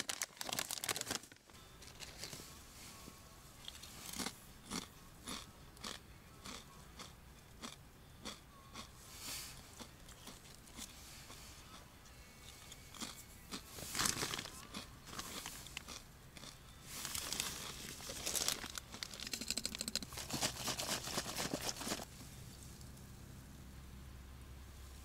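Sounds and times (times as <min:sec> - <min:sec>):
plastic snack bag crinkling: 0:00.0 - 0:02.4, 0:13.8 - 0:22.1.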